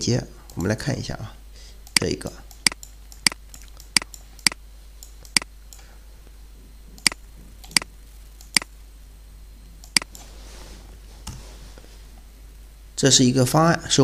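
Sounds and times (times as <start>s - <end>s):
computer mouse clicks: 1.8s - 5.9s, 7.0s - 8.7s, 9.8s - 10.3s.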